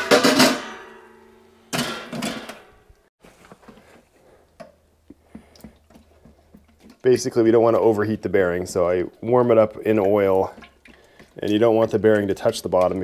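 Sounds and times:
faint clicks of oil pouring: 0:09.0 - 0:13.0.

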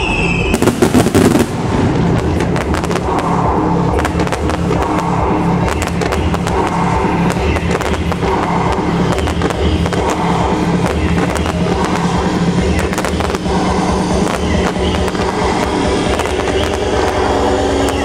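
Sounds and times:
trance music with steady beat: 0:00.0 - 0:18.0
fireworks popping and crackling: 0:00.4 - 0:18.0.

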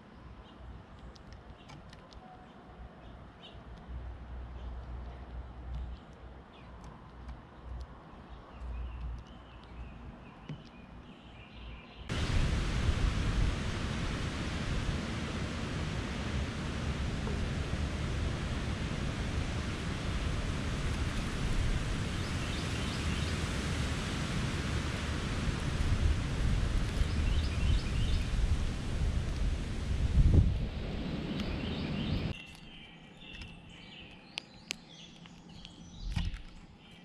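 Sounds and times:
wind rushing on microphone: 0:12.1 - 0:32.4.

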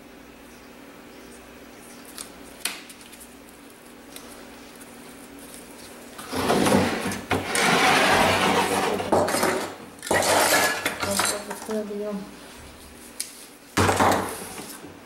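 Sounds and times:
board scraping on wooden workbench: 0:06.2 - 0:09.3.

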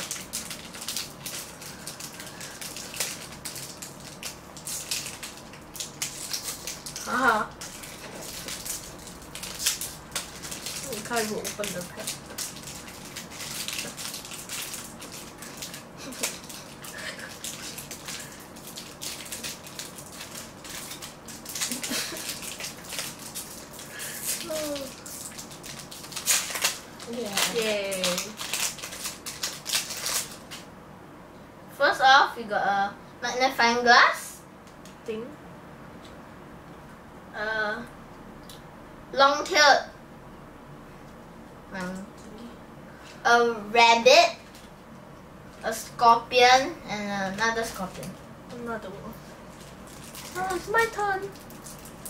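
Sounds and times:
foil wrapper crinkling: 0:00.0 - 0:30.7, 0:44.3 - 0:44.8, 0:47.2 - 0:48.8, 0:49.4 - 0:52.0.

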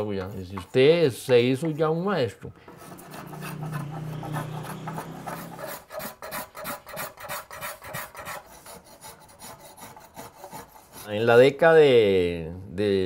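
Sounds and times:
hand tool shaving wood: 0:02.6 - 0:11.3.

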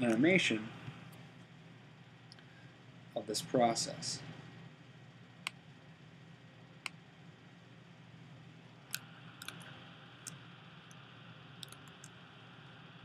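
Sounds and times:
low steady hum: 0:00.0 - 0:13.0
keyboard and mouse clicks: 0:08.9 - 0:09.6, 0:11.6 - 0:12.1.

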